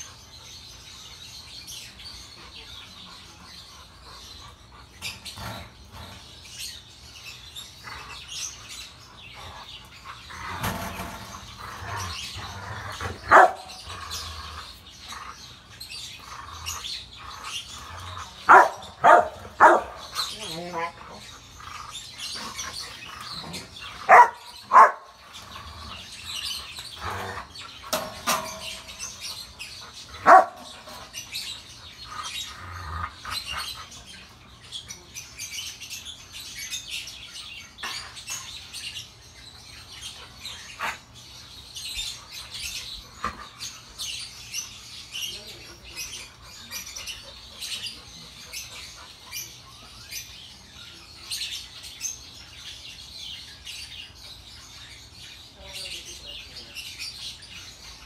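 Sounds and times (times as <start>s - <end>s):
birds chirping: 0.0s - 58.0s
dogs barking: 11.4s - 15.6s, 16.2s - 34.3s.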